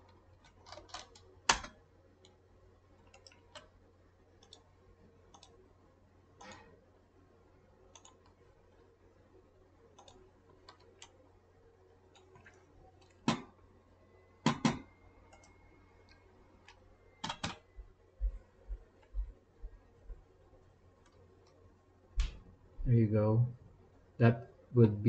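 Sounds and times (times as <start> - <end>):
faint steady hum: 0.0 - 25.0
mouse and keyboard clicks: 7.9 - 8.4.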